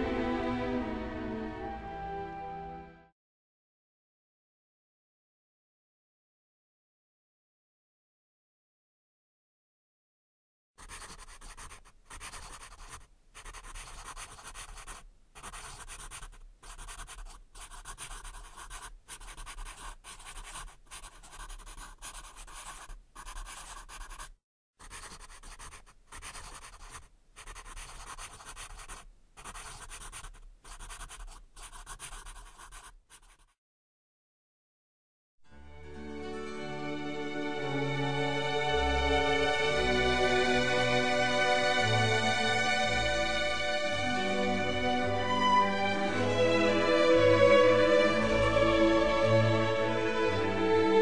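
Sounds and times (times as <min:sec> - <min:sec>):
pen scratching on paper: 0:10.8 - 0:33.6.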